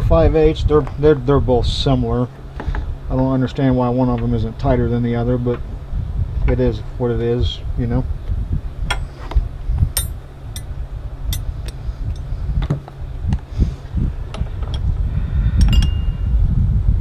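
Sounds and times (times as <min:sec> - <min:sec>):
steady low rumble: 0:00.0 - 0:17.0
wrench clicking on metal: 0:10.0 - 0:10.7.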